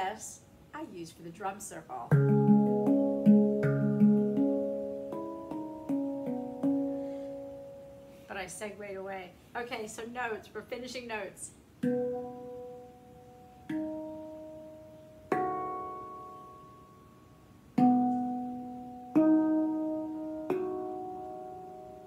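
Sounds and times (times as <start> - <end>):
handpan notes ringing: 2.1 - 8.2, 11.8 - 22.0.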